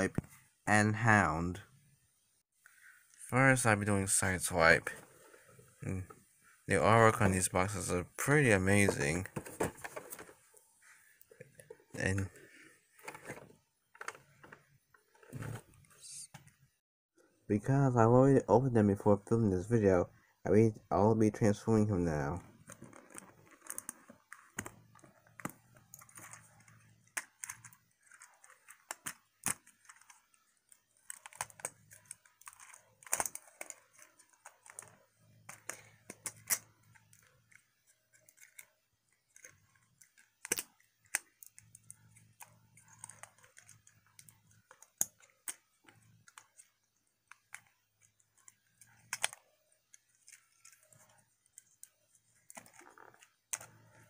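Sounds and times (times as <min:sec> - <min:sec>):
plastic toy parts clicking: 0:22.8 - 0:53.9.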